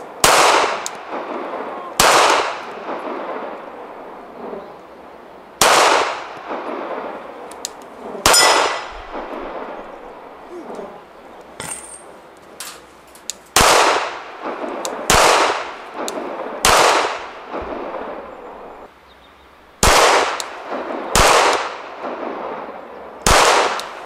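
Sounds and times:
pistol shots echoing: 0.1 - 4.6, 5.6 - 10.4, 13.5 - 18.3, 19.8 - 24.0.

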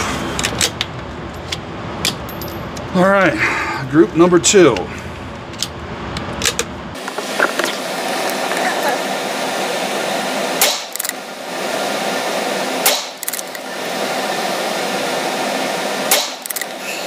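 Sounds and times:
fan-like background noise: 0.0 - 17.0
rifle shots: 10.6 - 11.0, 12.8 - 13.2, 16.1 - 16.5.

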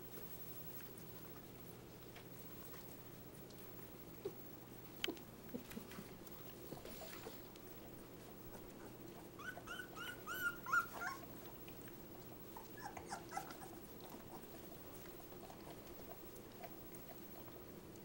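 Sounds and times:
puppies squeaking: 8.8 - 11.3, 12.6 - 13.8.

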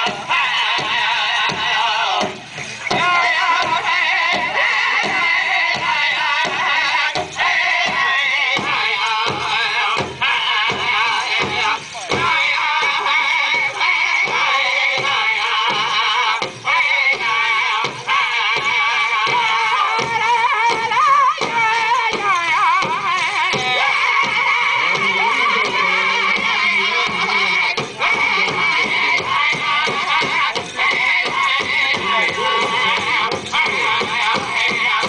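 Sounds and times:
high wavering voices singing: 0.0 - 35.0
steady drum beat: 0.0 - 35.0.

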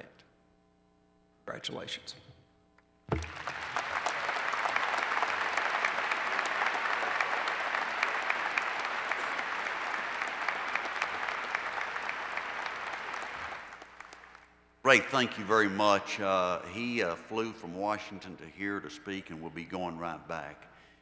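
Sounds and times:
audience applauding: 3.1 - 15.8.

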